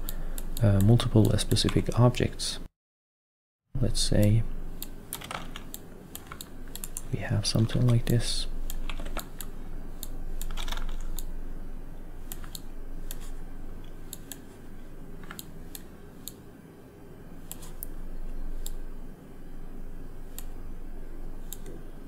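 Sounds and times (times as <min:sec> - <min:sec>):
steady low hum: 0:00.0 - 0:02.7, 0:03.8 - 0:22.0
mouse and keyboard clicks: 0:12.3 - 0:14.5.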